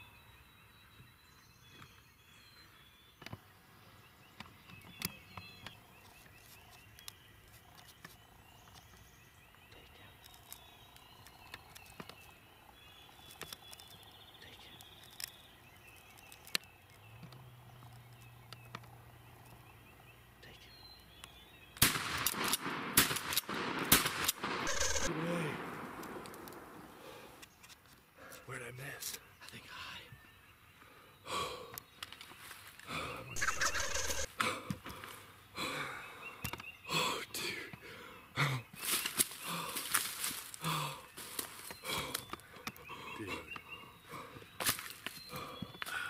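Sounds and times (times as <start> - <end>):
faint birdsong: 0.0 - 46.0
shotgun shots: 21.8 - 26.8.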